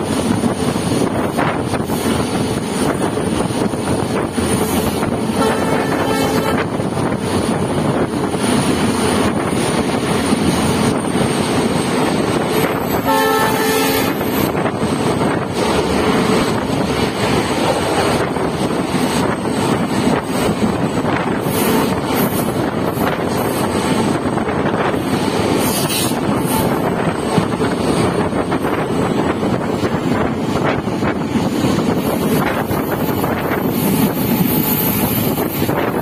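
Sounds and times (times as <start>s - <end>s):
train wheels on rails: 0.0s - 36.0s
train horn: 5.4s - 6.8s, 12.9s - 14.5s.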